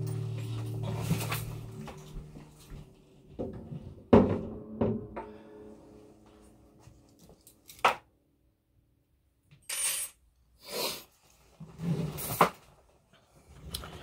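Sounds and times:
guitar open strings ringing: 0.0 - 8.3
knock: 3.4 - 5.3.

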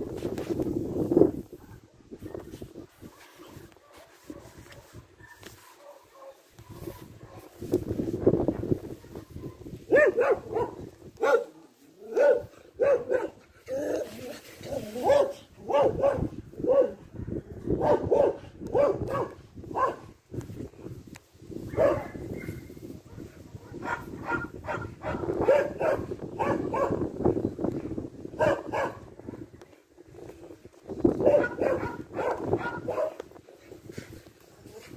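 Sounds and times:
dog barking: 3.1 - 7.5, 9.4 - 13.4, 15.0 - 20.1, 21.7 - 27.0, 28.4 - 29.1, 31.2 - 33.2.

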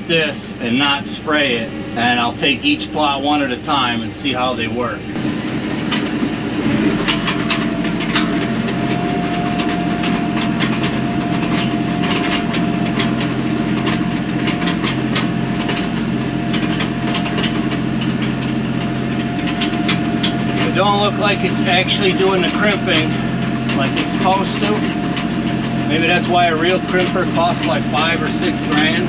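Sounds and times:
implement rattling and clattering: 0.0 - 29.0
tractor running with whine: 0.0 - 29.0.

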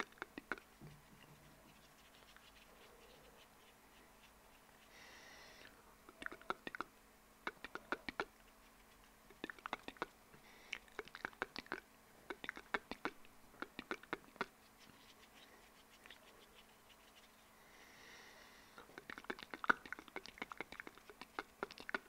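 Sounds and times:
tongue and lip clicks: 0.0 - 3.8, 5.6 - 14.6, 18.8 - 22.0.

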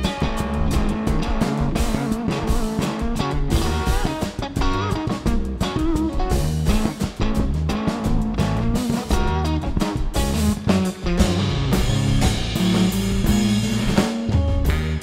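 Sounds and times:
bass guitar: 0.0 - 15.0
drum kit: 0.0 - 15.0
electric guitar: 0.0 - 15.0
baritone saxophone: 12.6 - 15.0.

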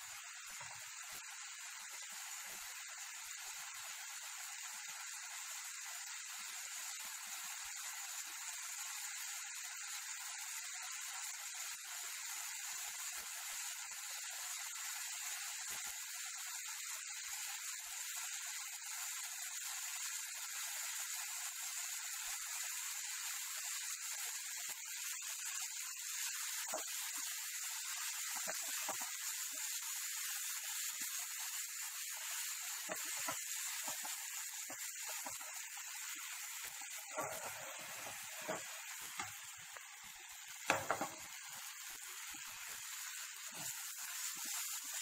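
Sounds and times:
vegetables sizzling in oil: 0.0 - 45.0
spatula stirring: 32.2 - 39.5, 40.7 - 41.3.

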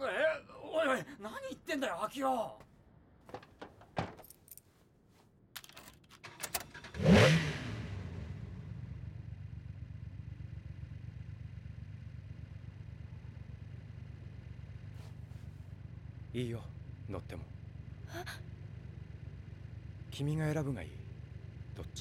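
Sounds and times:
car engine starting and idling: 5.6 - 22.0.

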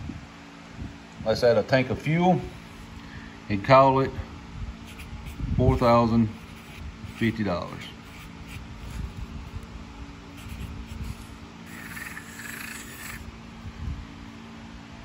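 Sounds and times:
marker scratching on cardboard: 4.8 - 9.3, 10.3 - 13.3.

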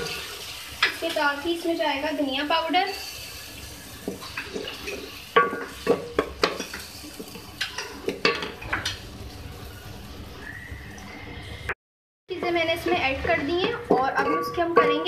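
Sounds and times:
onions sizzling in oil: 0.0 - 10.6
spatula scraping metal pot: 12.4 - 15.0.

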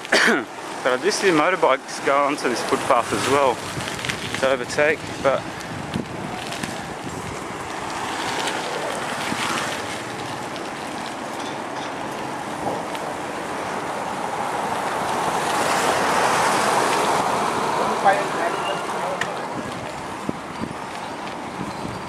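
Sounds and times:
road traffic: 0.0 - 22.0
wind rushing over microphone: 2.5 - 11.3, 19.4 - 22.0.

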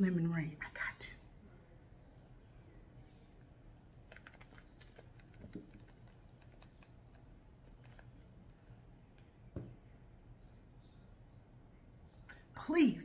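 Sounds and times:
spice shaker shaking: 3.8 - 8.2.

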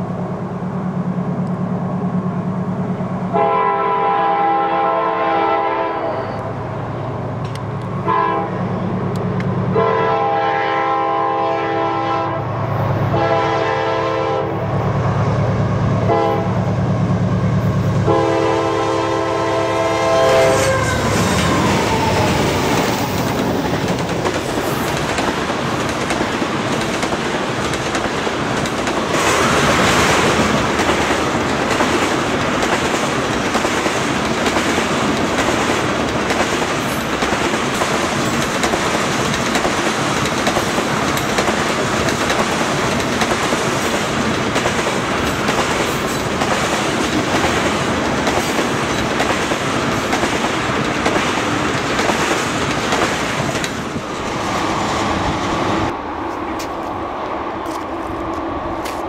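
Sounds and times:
locomotive air horn blasts: 3.3 - 6.4, 8.0 - 8.7, 9.7 - 12.5, 13.1 - 14.6, 16.1 - 16.6, 18.0 - 21.3
train wheels clattering on rails: 20.4 - 55.7.

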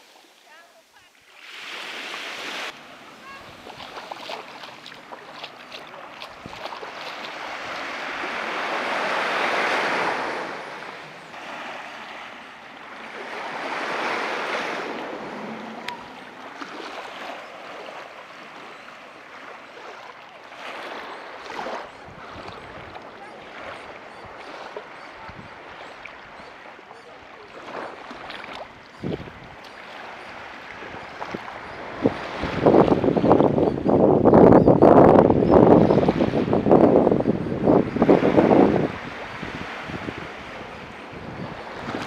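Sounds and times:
surf hissing on beach: 0.0 - 19.7, 35.3 - 42.0
waves breaking: 0.0 - 42.0.

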